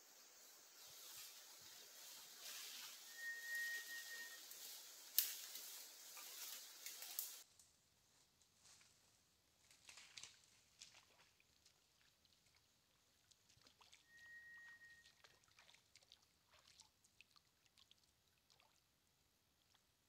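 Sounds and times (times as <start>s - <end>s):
high whistle: 2.8s - 4.6s, 14.0s - 15.1s
water splashing and dripping: 4.5s - 7.4s, 10.0s - 14.1s, 15.0s - 18.9s.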